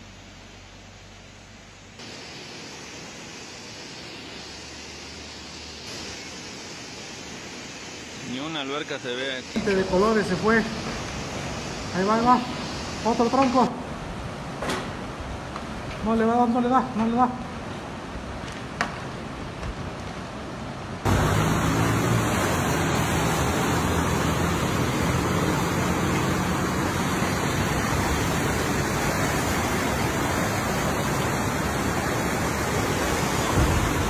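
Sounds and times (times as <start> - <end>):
floodwater rushing: 21.0 - 34.0.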